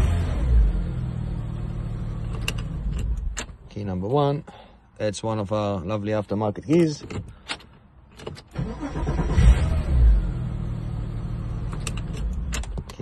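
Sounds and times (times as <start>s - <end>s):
car engine starting and idling: 0.0s - 3.6s, 7.4s - 13.0s.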